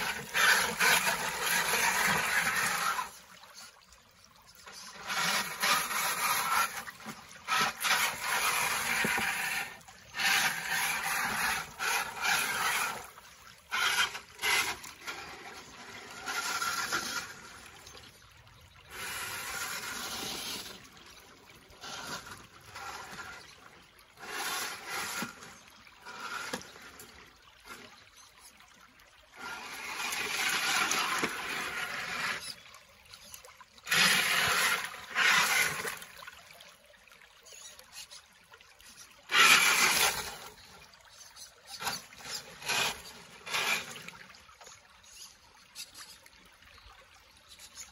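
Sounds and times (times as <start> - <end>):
toy car motor whining: 0.0 - 3.2, 4.7 - 17.7, 18.9 - 20.9, 33.2 - 36.1, 38.8 - 46.2
tyres splashing and scraping stones: 0.0 - 3.8, 4.5 - 28.5, 29.4 - 36.4, 38.8 - 46.2
creek water running: 0.0 - 47.9.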